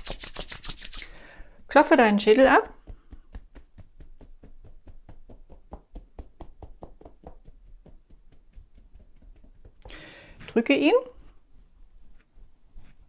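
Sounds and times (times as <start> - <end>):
fingertips tapping on scalp: 2.2 - 10.1.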